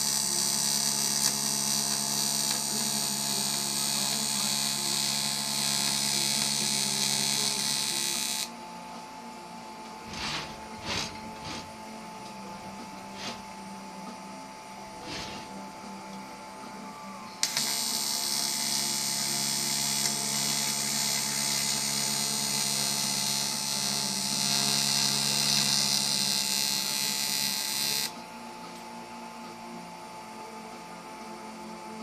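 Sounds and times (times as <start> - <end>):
welding arc buzzing and hissing: 0.0 - 8.5, 10.0 - 11.8, 13.1 - 13.5, 15.0 - 15.6, 17.4 - 28.1.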